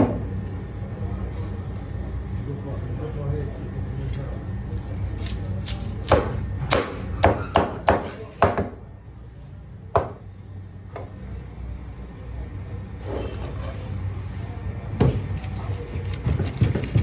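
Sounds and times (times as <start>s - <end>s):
knife chopping on cutting board: 5.1s - 8.7s, 15.0s - 17.0s.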